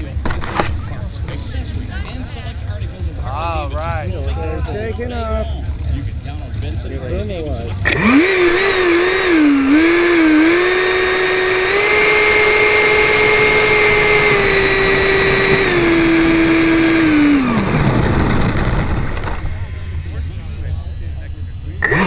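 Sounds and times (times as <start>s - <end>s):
electric fan whining: 7.8s - 22.0s.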